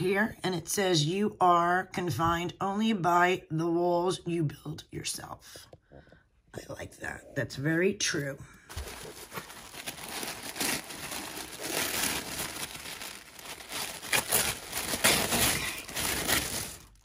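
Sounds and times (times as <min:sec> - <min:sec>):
tissue paper rustling and crinkling: 0:08.7 - 0:17.0.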